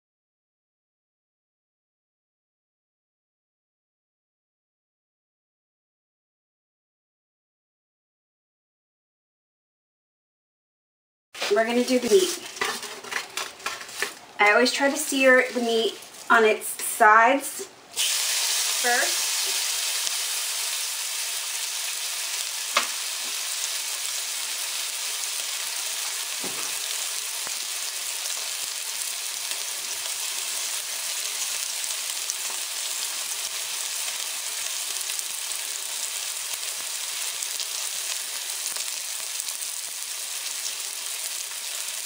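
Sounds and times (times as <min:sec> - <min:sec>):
meat sizzling in a pot: 0:17.9 - 0:42.0.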